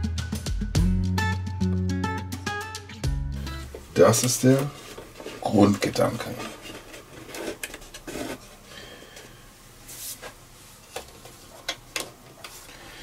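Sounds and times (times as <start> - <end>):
soft rubbing on wood: 3.8 - 8.6, 9.8 - 11.6.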